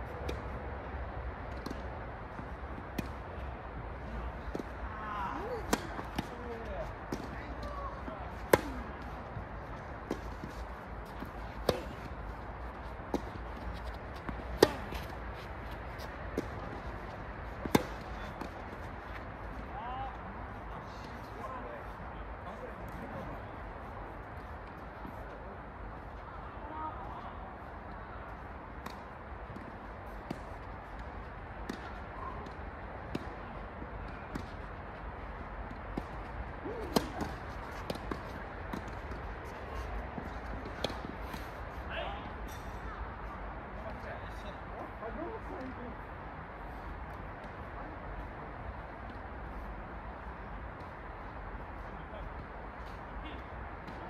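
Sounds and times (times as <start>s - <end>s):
outdoor background noise: 0.0s - 54.0s
rackets striking tennis ball: 5.4s - 19.7s, 35.6s - 41.6s
tennis racket hitting ball: 5.6s - 6.4s, 13.1s - 15.2s, 17.6s - 18.6s, 36.8s - 39.2s
footsteps on court: 5.7s - 19.7s.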